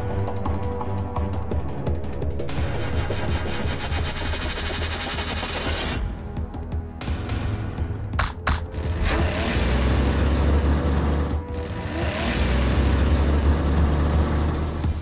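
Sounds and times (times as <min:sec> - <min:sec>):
sharp knocks: 0:08.2 - 0:08.8
monster truck engine revving: 0:08.7 - 0:15.0.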